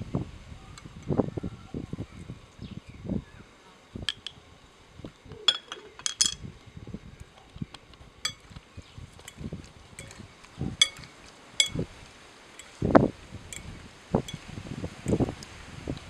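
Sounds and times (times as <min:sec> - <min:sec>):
soft stirring sounds: 0:07.2 - 0:14.5
forks clinking against glass bowl: 0:08.3 - 0:08.5, 0:10.0 - 0:10.2, 0:10.8 - 0:11.8.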